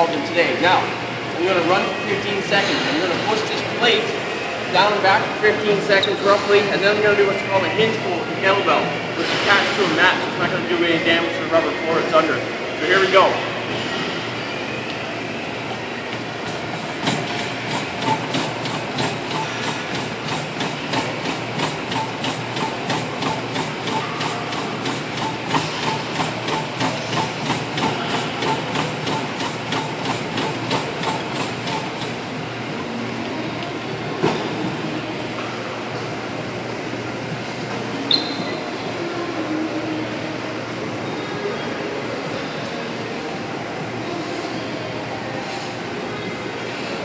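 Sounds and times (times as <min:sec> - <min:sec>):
treadmill humming: 0:14.2 - 0:41.2
running footfalls on treadmill: 0:16.0 - 0:32.4.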